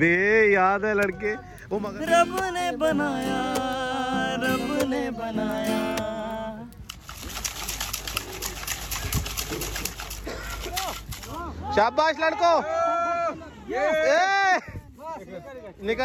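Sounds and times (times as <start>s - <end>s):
man singing: 0.0s - 6.8s
strummed acoustic guitar: 1.1s - 6.8s.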